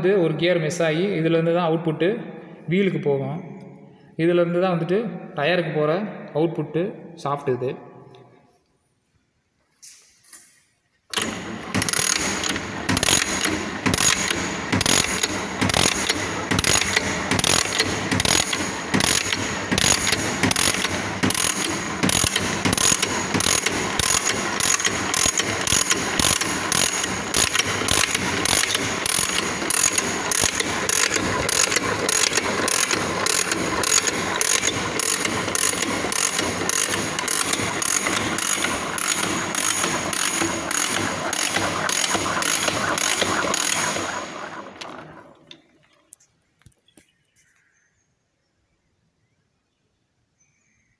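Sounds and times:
engine gears clattering: 11.1s - 46.1s.

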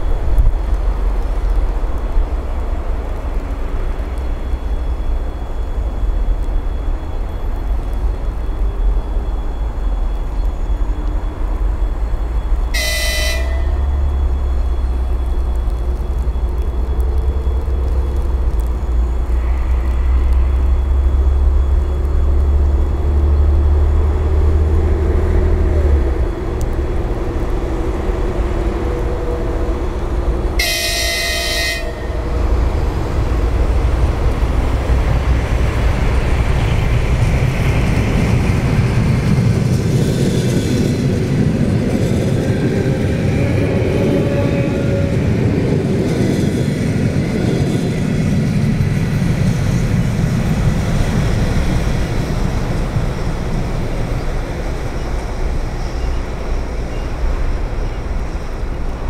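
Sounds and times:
train running noise: 0.0s - 59.0s
train horn blasts: 12.7s - 14.2s, 30.6s - 32.6s.

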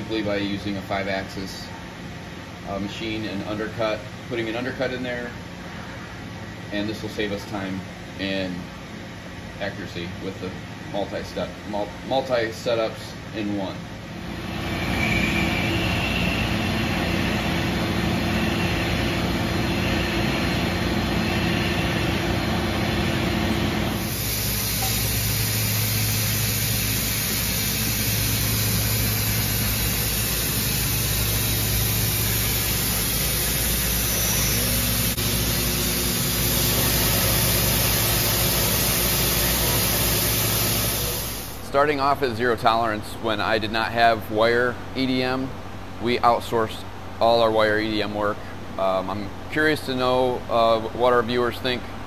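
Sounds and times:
milling machine humming: 14.1s - 41.7s.

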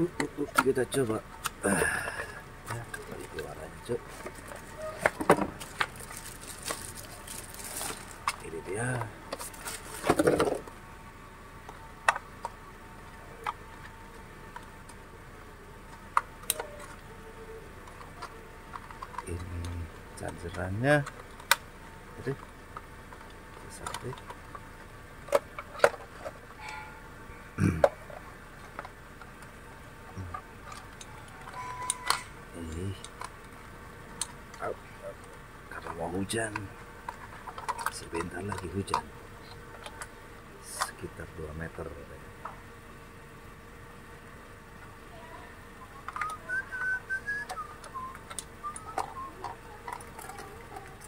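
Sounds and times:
whistled notes: 46.0s - 49.5s.

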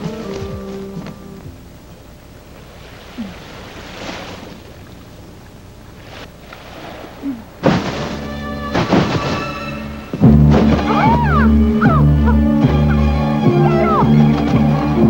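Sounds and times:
loud film music: 8.2s - 15.0s.

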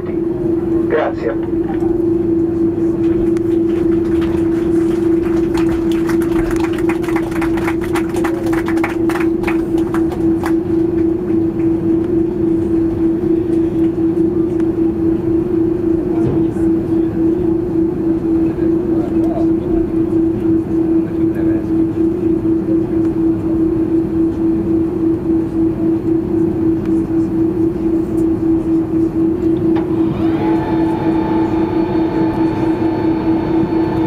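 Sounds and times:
airplane cabin hum: 0.0s - 34.0s.

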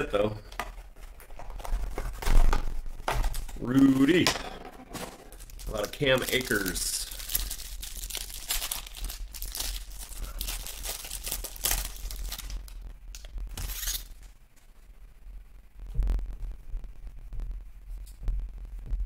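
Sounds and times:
cellophane wrapper crinkling: 0.0s - 4.2s, 4.9s - 14.4s.

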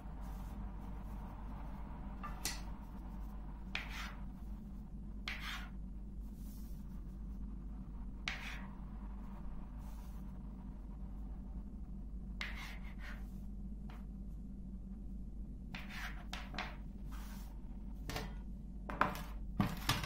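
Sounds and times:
steady low hum: 0.0s - 20.0s
knife cutting dough on table: 3.7s - 4.2s, 5.3s - 5.8s, 8.3s - 8.7s, 12.4s - 13.2s, 15.7s - 17.3s.

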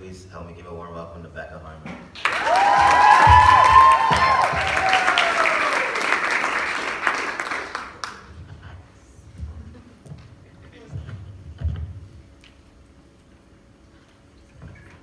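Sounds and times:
whoops: 2.2s - 6.4s
people clapping and cheering: 2.2s - 8.3s.

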